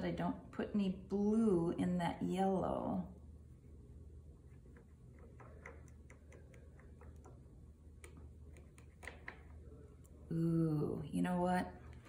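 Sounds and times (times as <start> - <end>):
low steady hum: 0.0 - 12.0
brush tapping paint on paper: 4.5 - 9.6.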